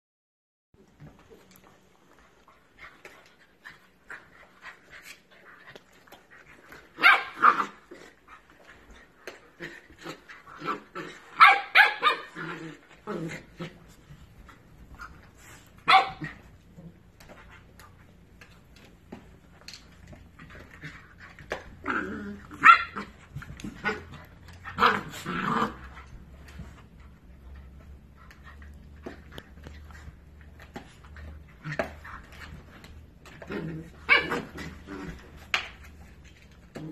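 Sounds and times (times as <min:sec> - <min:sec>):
dogs growling: 0:20.7 - 0:22.6, 0:23.6 - 0:26.1, 0:33.3 - 0:35.4.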